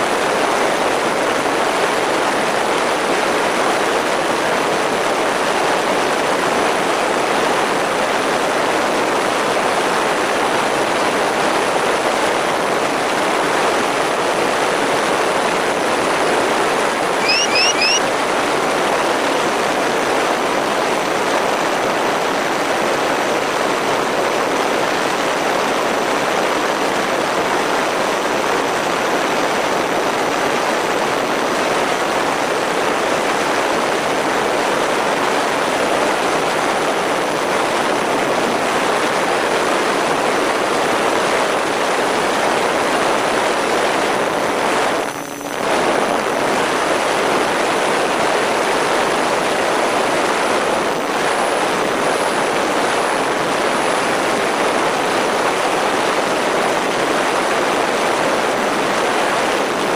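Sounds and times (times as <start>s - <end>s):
thin high whine: 17.2s - 18.1s, 44.9s - 46.4s.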